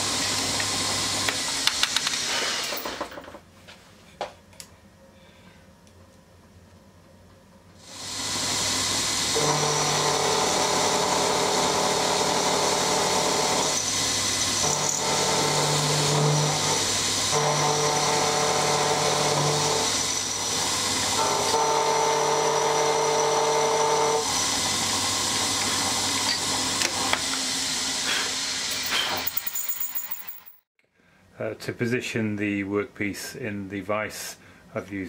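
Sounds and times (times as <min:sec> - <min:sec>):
milling machine spindle hum: 0:07.9 - 0:28.9
end mill cutting steel: 0:07.9 - 0:29.3.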